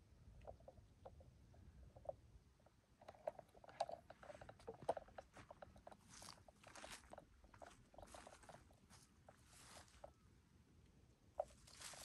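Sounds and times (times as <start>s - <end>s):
footsteps crunching on trail: 4.2s - 10.2s, 11.4s - 12.0s.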